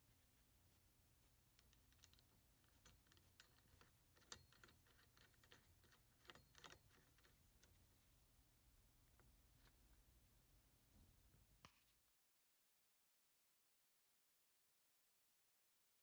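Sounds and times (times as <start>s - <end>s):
small clicks: 1.5s - 7.9s.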